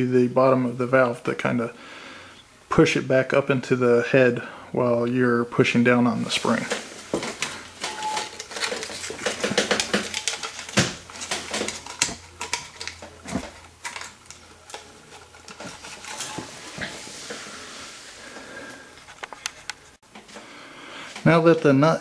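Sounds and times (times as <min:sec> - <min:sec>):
tape rustling and crinkling: 0:06.3 - 0:18.4.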